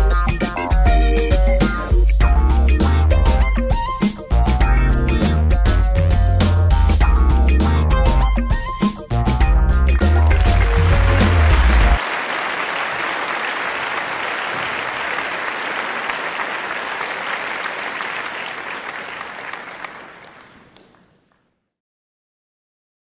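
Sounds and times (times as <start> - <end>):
background music: 0.0 - 12.0
audience applauding: 10.0 - 21.4.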